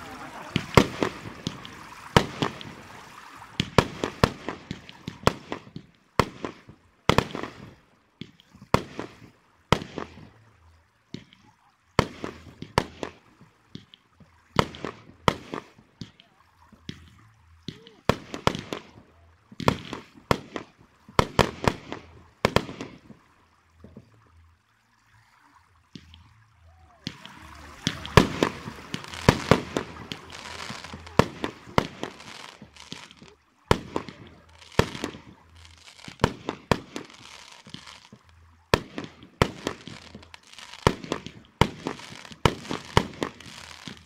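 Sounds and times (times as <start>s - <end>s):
faint firework crackles: 0.0s - 44.0s
firework shells bursting: 27.0s - 38.2s.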